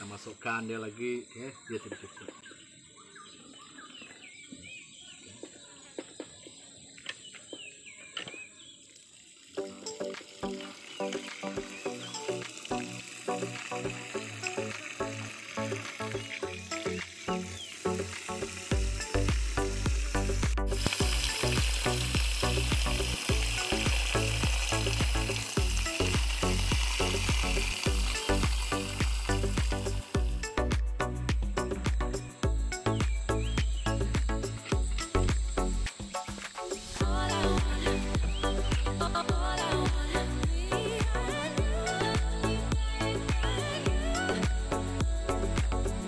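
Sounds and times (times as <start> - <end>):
high insect drone: 6.8 - 46.0
water pouring into a pot: 8.8 - 30.4
music: 9.5 - 46.0
birds whistling: 31.6 - 39.2.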